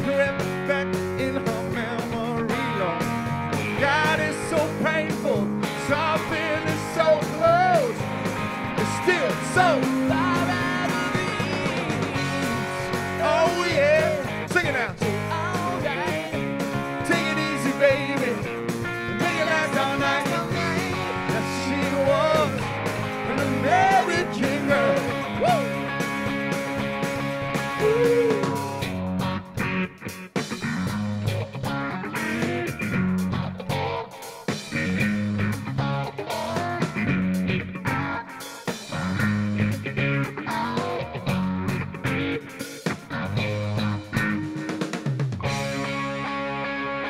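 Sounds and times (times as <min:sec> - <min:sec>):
man singing: 0:00.0 - 0:03.1, 0:03.7 - 0:08.0, 0:08.8 - 0:25.8, 0:27.8 - 0:28.8
drums: 0:00.0 - 0:47.0
electric guitar: 0:00.0 - 0:47.0.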